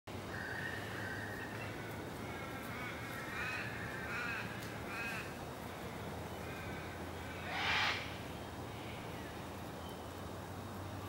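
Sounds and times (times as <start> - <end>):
short arching bird calls: 6.4 - 8.2
cockatoo screech: 7.5 - 8.1.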